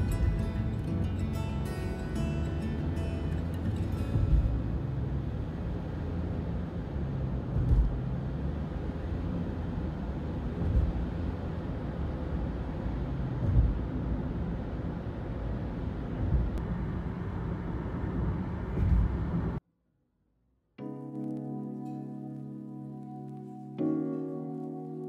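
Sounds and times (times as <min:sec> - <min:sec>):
road and tyre rumble in car: 0:00.0 - 0:19.6
low thump: 0:04.1 - 0:04.8, 0:07.5 - 0:08.0, 0:10.6 - 0:11.2, 0:13.4 - 0:13.9, 0:16.2 - 0:16.6, 0:18.7 - 0:19.3.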